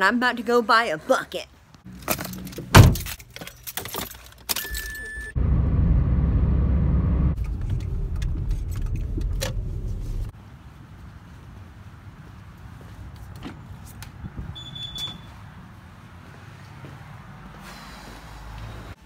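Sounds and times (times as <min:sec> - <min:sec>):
car engine and road noise: 0:01.8 - 0:04.1, 0:05.3 - 0:19.0
keys jangling: 0:01.9 - 0:05.1.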